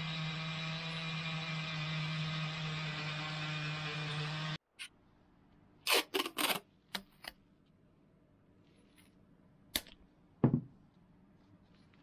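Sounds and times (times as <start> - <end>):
dull knock on workbench: 10.4 - 10.7.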